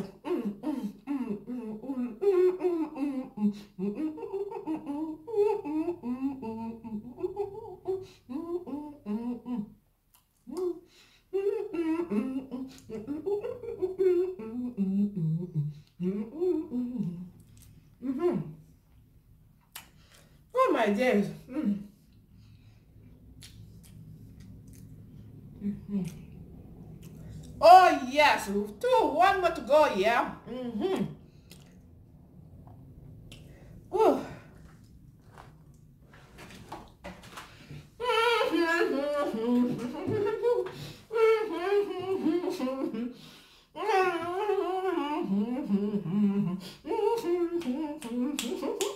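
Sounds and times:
woman humming while chewing: 0:00.0 - 0:18.7, 0:23.4 - 0:27.6, 0:30.4 - 0:31.8, 0:38.0 - 0:48.9
person chewing: 0:17.4 - 0:18.0, 0:23.0 - 0:27.6, 0:31.3 - 0:33.5.

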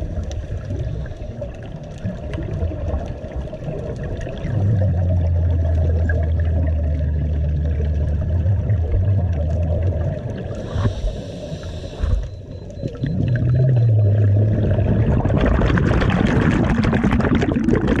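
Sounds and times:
bubbles rushing: 0:01.4 - 0:10.7, 0:12.1 - 0:18.0
low steady hum: 0:04.2 - 0:17.3
diver breathing through regulator: 0:10.5 - 0:12.5.

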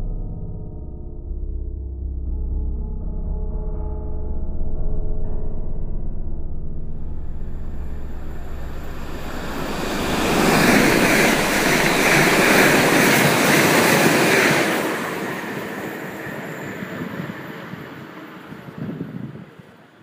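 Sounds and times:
train rushing past: 0:07.0 - 0:20.0.

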